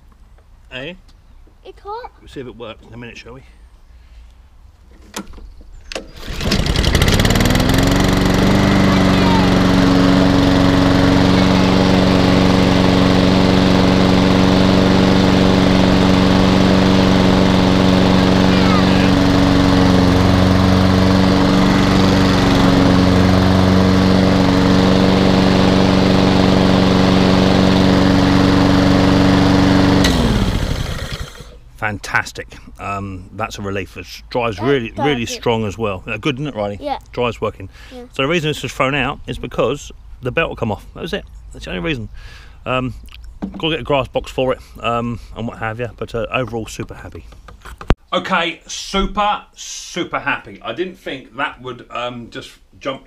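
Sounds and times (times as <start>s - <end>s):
lawnmower engine starting and running: 5.9s - 31.8s.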